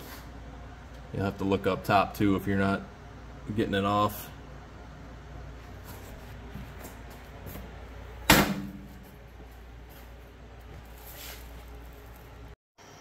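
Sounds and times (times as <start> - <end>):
metal engine cover bang: 8.3 - 8.9.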